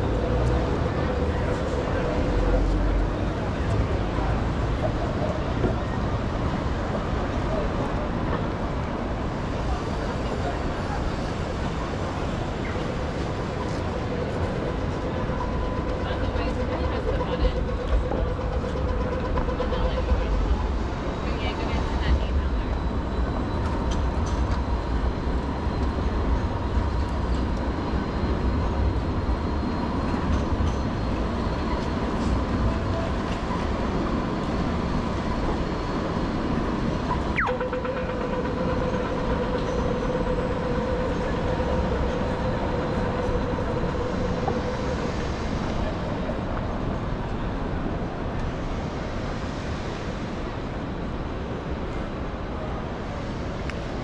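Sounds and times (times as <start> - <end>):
tram rumbling past: 0.0 - 54.0
electric whine: 34.9 - 45.9
tone sweeping down in pitch: 37.1 - 45.1.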